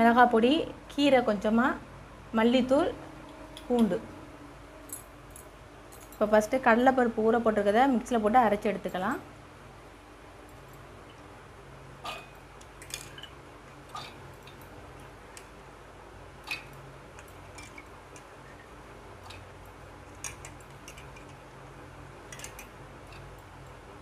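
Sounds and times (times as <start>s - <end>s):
faint steady hum: 0.0s - 24.0s
steel jar clicks and taps: 20.1s - 21.5s, 22.3s - 23.4s.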